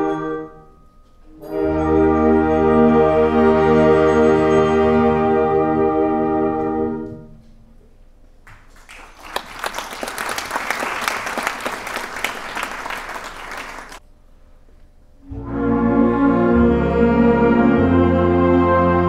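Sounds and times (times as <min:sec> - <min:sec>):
audience clapping: 0:08.4 - 0:14.0.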